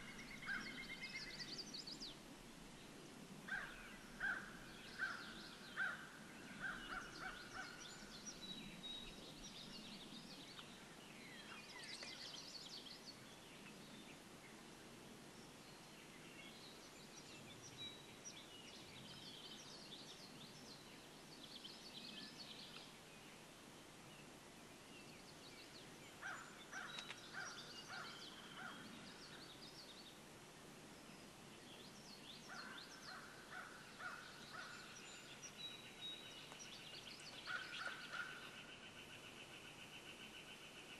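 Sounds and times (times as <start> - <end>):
faint songbirds chirping: 0.0 - 40.9.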